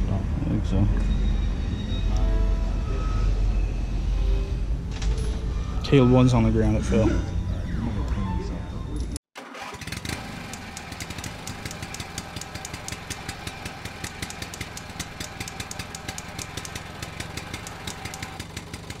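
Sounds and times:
engine idling with ticking clatter: 9.8 - 19.0.

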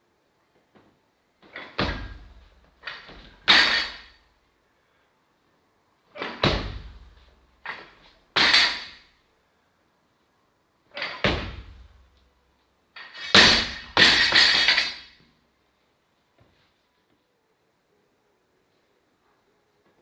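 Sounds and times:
barbell dropped clanking on floor: 1.5 - 4.2, 7.7 - 9.0, 11.0 - 11.9, 13.0 - 15.2
barbell thud: 1.5 - 4.2, 6.2 - 9.1, 11.0 - 12.1, 13.0 - 15.2.

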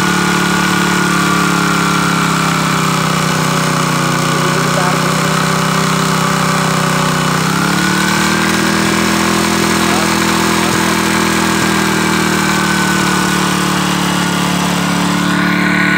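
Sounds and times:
small engine running: 0.0 - 15.9.

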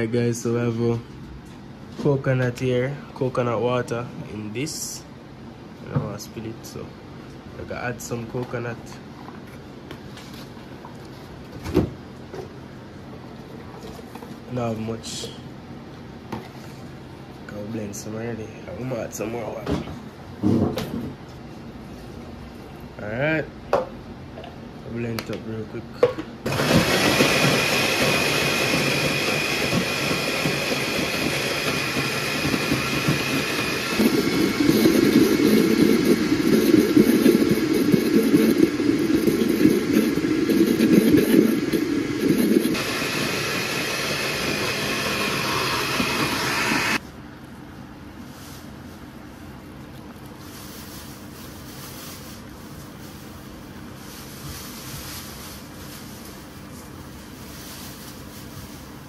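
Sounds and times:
blender motor whining: 26.5 - 47.0.

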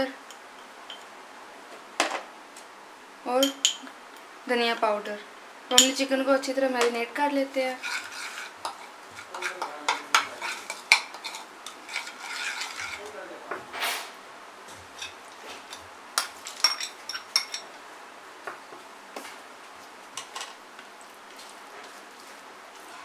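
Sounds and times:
spoon stirring thick marinade: 7.7 - 13.2, 14.8 - 17.6
spoon clinking against bowl: 16.2 - 17.6.

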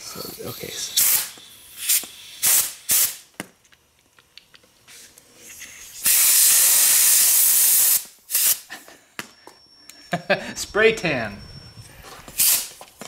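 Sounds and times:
air blow gun hissing: 0.0 - 3.2, 5.8 - 8.7, 12.3 - 12.8.

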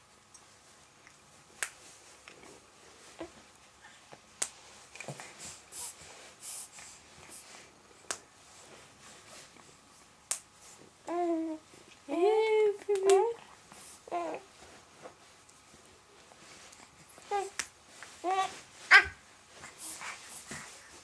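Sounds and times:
soft rustling: 0.3 - 21.0.

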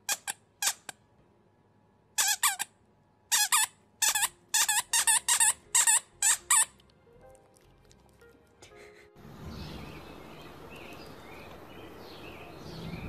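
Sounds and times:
squeaky toy squeaking: 0.0 - 1.0, 2.2 - 6.9.

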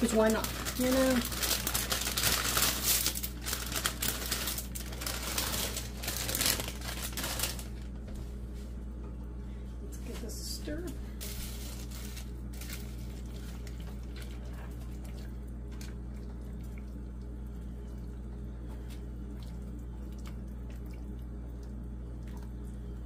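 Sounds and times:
steady low hum: 0.0 - 23.0
liquid sloshing and dripping: 12.6 - 23.0.

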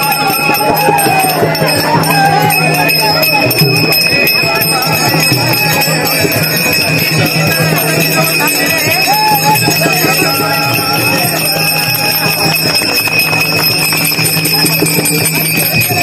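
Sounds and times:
hand cymbals clashing: 0.0 - 16.0
voices singing: 0.0 - 16.0.

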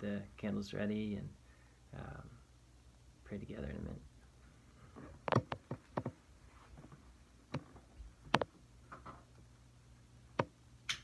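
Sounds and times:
clicks and knocks of handling: 5.2 - 6.2.

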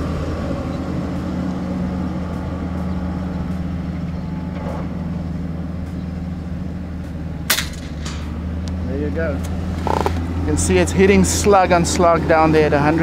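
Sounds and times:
suppressed air rifle shot: 7.5 - 8.4.

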